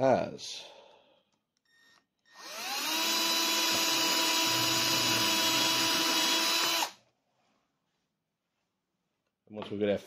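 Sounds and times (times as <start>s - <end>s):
cordless drill drilling into wood: 2.3s - 7.0s.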